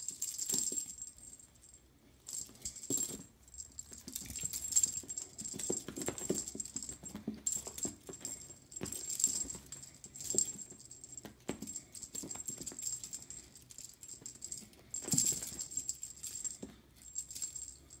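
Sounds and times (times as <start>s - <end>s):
cat toy jingling and rattling: 0.0s - 18.0s.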